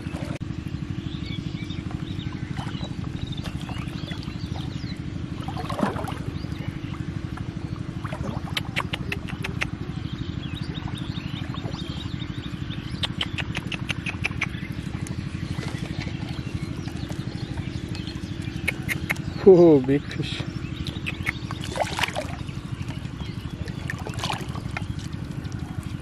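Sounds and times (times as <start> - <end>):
small engine running: 0.0 - 26.0
sharp high ticks: 13.0 - 15.2, 17.9 - 19.3.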